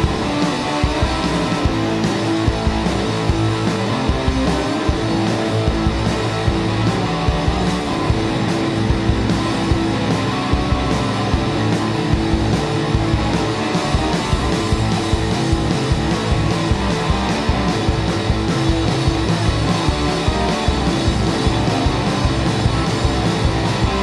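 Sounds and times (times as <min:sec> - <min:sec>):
rock band playing: 0:00.0 - 0:24.0.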